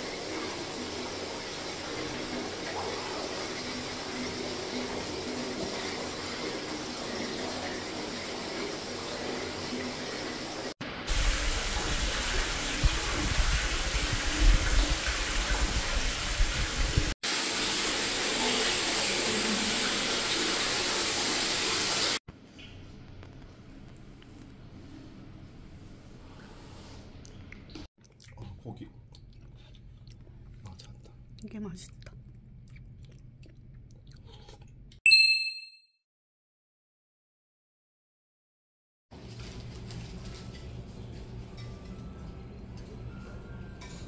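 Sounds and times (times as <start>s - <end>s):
water rushing into stone bath: 0.0s - 22.2s.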